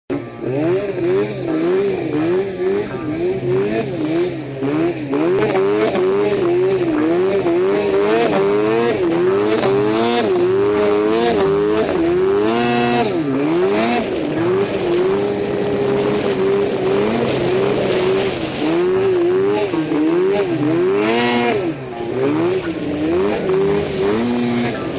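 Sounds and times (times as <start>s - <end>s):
snowmobile engine revving: 0.1s - 24.9s.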